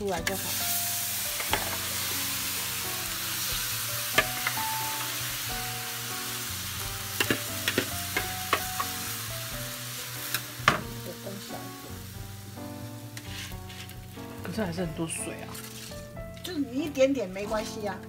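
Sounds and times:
rice sizzling in a hot pan: 0.0s - 18.0s
metal spatula scraping a pan: 13.1s - 14.2s, 15.4s - 16.1s.

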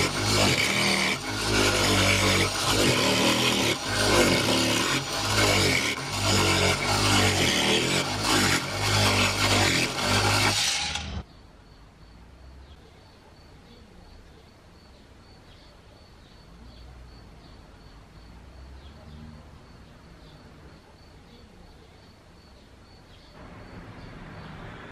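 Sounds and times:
angle grinder with chisel running: 0.0s - 11.2s.

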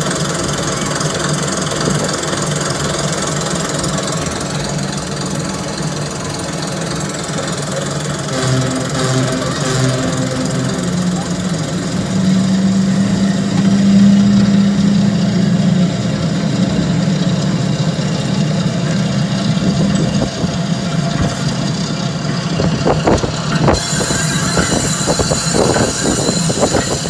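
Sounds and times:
amusement ride mechanical drone: 0.0s - 27.0s
people's voices: 4.0s - 14.0s.

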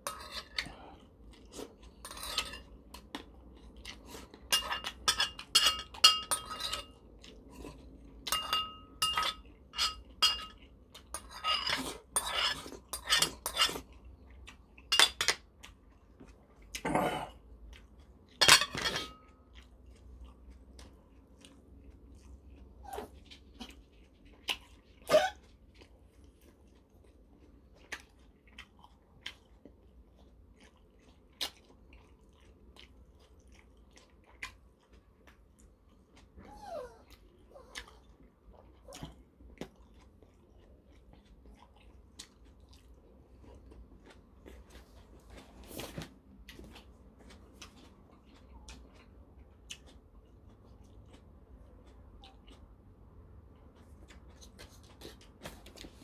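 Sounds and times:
soft chewing: 0.0s - 56.0s
spoon clinking against bowl: 4.5s - 6.9s, 8.3s - 10.6s.

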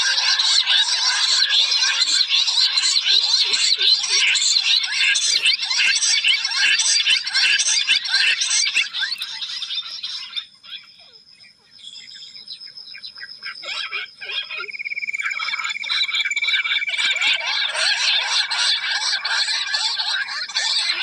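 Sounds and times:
quail chirping chorus: 0.0s - 21.0s.

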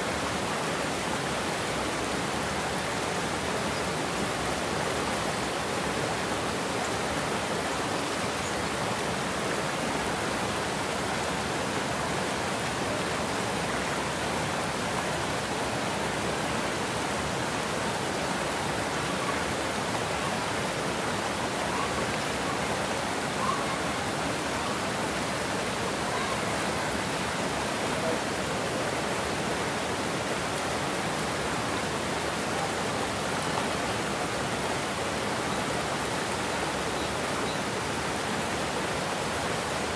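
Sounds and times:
water rushing over weir: 0.0s - 39.9s.

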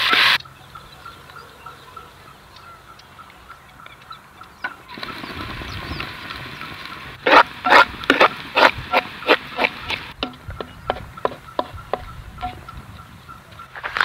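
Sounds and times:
poultry harsh calls: 0.0s - 14.0s
bird or insect chirping: 0.2s - 4.9s.

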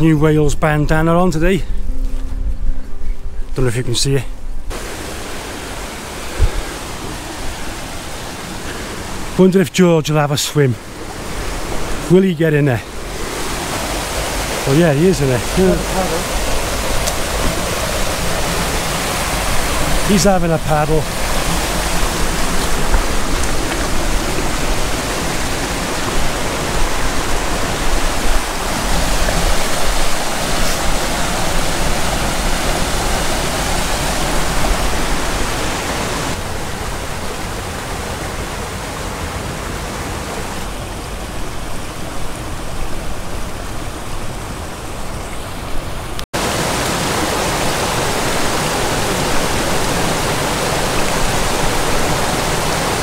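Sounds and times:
stream rushing over boulders: 4.7s - 53.0s.

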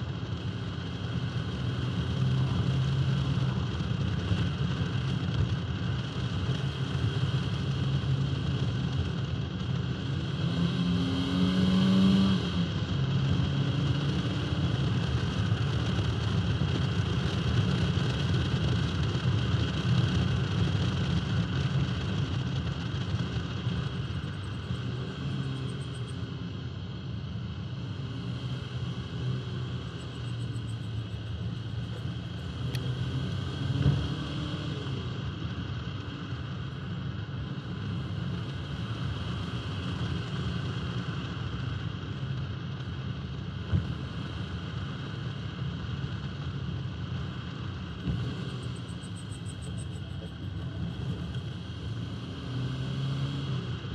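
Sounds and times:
car engine running: 0.0s - 53.9s
road noise: 0.0s - 53.9s.

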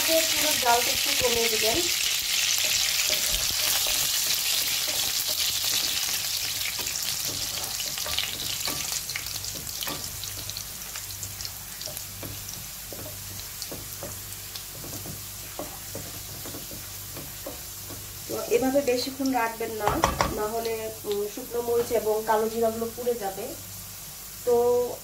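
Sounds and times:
spices sizzling in hot oil: 0.0s - 25.0s
spatula scraping a pan: 1.2s - 18.2s.

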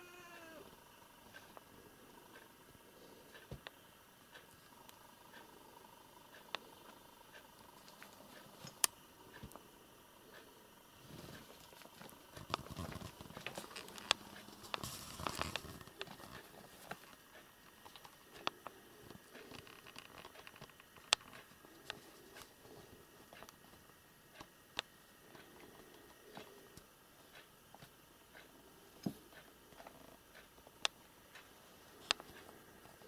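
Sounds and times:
rustling: 11.0s - 18.2s.

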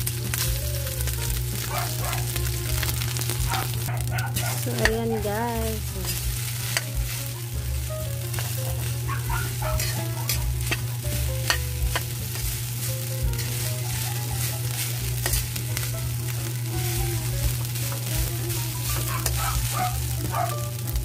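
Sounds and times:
low hum: 0.0s - 21.0s
rice sizzling in wok: 0.0s - 21.0s
spatula scraping wok: 0.0s - 21.0s
spatula clacking against wok: 8.3s - 12.6s, 13.2s - 15.9s, 18.9s - 20.5s.

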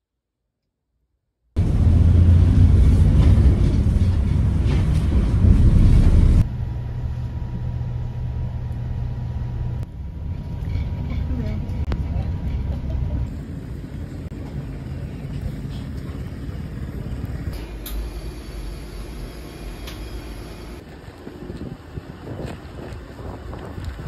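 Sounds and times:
vehicle rumble from on board: 1.6s - 17.6s
faint steady whine: 13.3s - 21.0s.

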